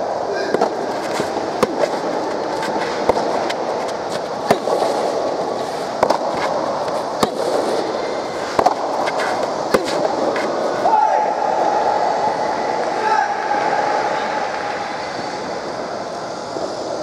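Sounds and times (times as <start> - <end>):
steady background noise: 0.0 - 17.0
rubber ball struck by rackets: 0.4 - 5.2, 5.9 - 10.6.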